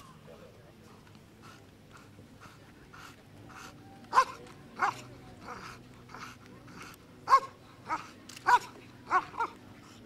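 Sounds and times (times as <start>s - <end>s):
dog barking: 4.1s - 5.0s, 7.3s - 9.6s.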